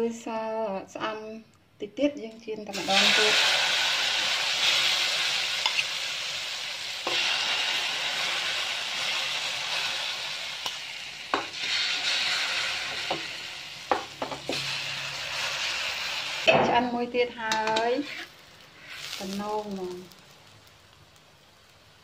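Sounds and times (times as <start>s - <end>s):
greens sizzling in oil: 2.6s - 22.0s
metal spoon clicking on pan: 17.5s - 17.9s.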